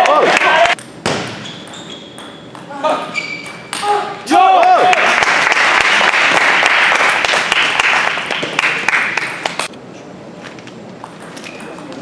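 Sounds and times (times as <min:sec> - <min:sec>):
spectators applauding: 0:04.6 - 0:09.6.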